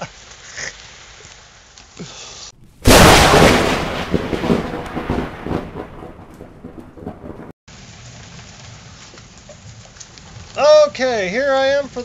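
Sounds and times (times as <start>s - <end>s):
rain falling: 0.0s - 12.0s
thunderclap and rolling thunder: 2.6s - 7.6s.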